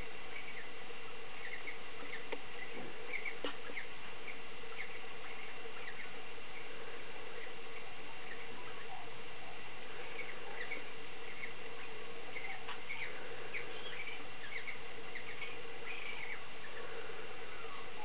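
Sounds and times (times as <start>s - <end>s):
background hiss: 0.0s - 18.0s
cockatiels squeaky chirps: 7.4s - 16.8s.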